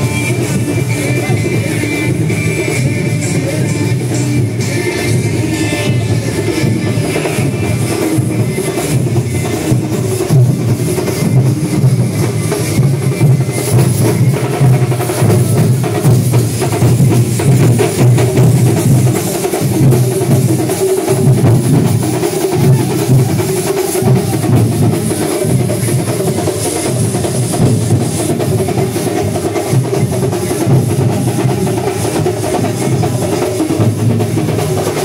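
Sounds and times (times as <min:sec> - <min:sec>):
drum troupe drumming: 0:00.0 - 0:35.0.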